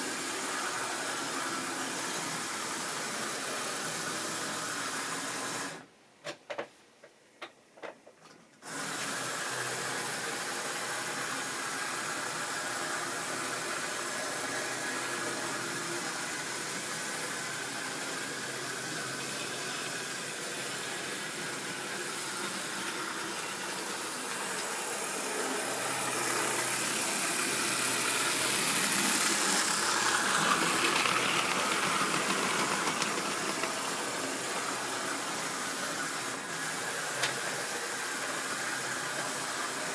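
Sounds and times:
model train motor whirring: 8.6 - 39.9.

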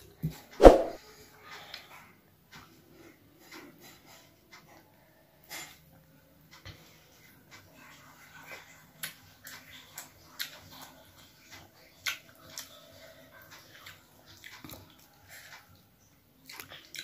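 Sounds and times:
chewing with wet mouth smacks: 8.6 - 12.9, 13.5 - 15.2, 16.4 - 17.0.

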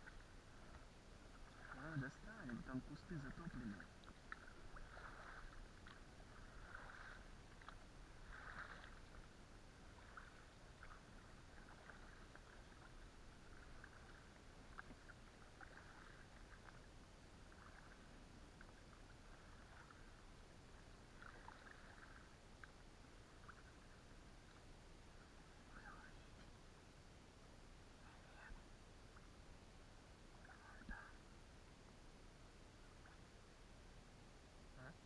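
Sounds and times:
oar splashes and drips: 0.0 - 25.7, 30.3 - 31.0.

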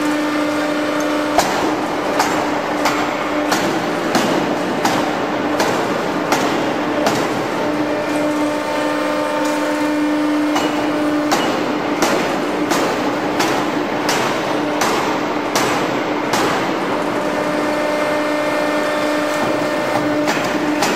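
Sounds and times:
steady machine hum: 0.0 - 20.9
forging hammer striking steel: 0.9 - 7.6, 9.3 - 16.9, 19.0 - 20.9.

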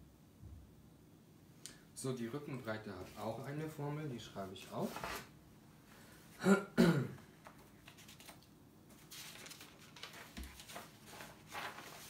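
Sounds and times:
book pages rustling: 4.4 - 5.3, 7.4 - 12.0
man clearing his throat: 6.4 - 7.3.

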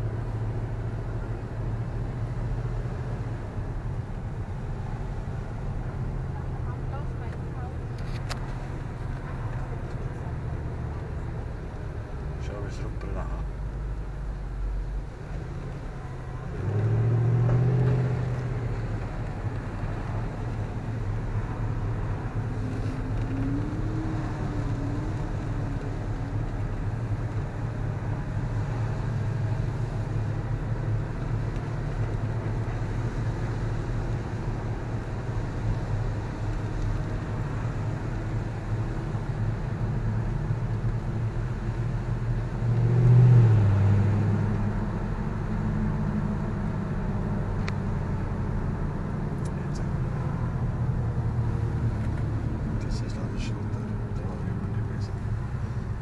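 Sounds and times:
road and wind noise: 0.0 - 56.0
car engine running: 43.5 - 56.0.

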